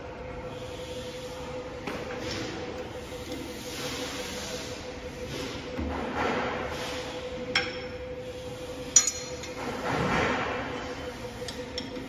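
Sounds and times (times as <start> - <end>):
steel parts clinking: 9.0 - 9.6.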